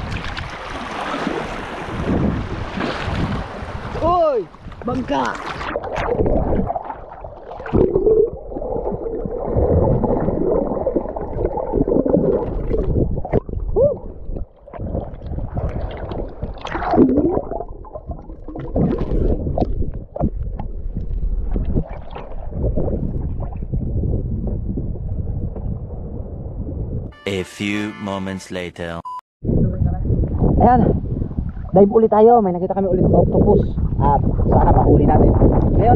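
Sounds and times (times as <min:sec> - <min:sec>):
sea water splashing and gurgling: 0:00.0 - 0:24.2.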